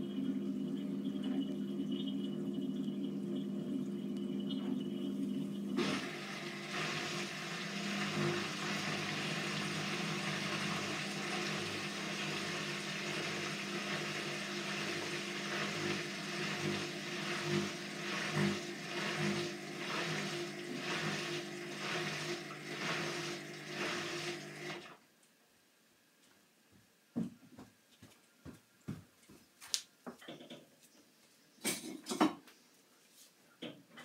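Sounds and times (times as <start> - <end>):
rhythmic sloshing pulse: 0.0 - 24.7
washing machine water rushing: 0.0 - 25.0.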